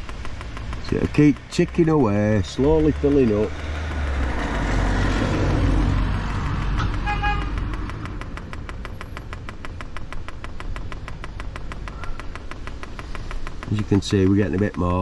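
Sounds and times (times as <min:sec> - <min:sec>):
fuel pump ticking: 0:00.0 - 0:15.0
short horn-like beep: 0:07.0 - 0:07.5.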